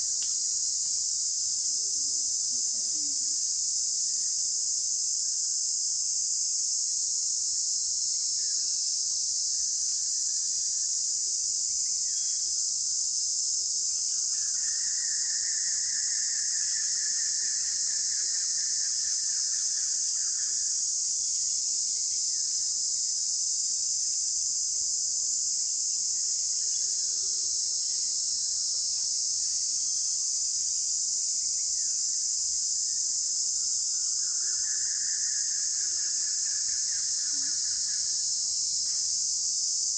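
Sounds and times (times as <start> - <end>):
high-pitched insect chorus: 0.0 - 39.9
lower-pitched insect buzz: 6.3 - 39.9.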